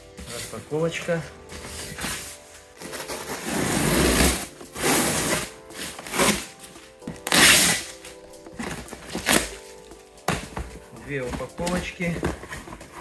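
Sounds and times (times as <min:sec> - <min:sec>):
soft background music: 0:00.0 - 0:13.0
packing tape ripping off cardboard: 0:01.5 - 0:10.7.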